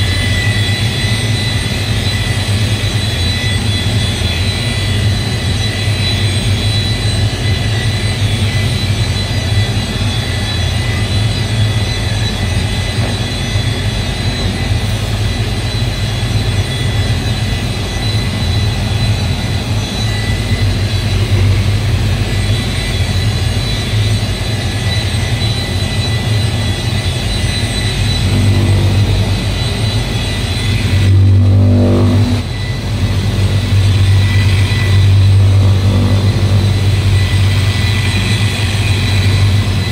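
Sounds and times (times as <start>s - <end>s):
electric polisher motor whir: 28.0s - 39.9s.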